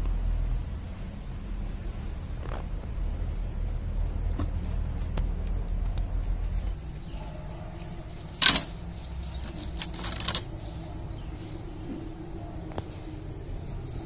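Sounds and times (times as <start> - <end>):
low steady rumble: 0.0 - 14.0
bamboo skewers clattering: 6.6 - 10.8
sharp clicks: 8.3 - 10.5.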